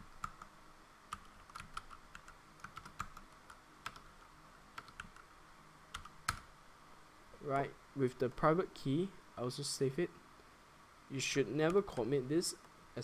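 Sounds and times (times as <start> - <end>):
computer keyboard keystrokes: 1.1 - 4.1, 4.8 - 5.3, 6.0 - 6.5.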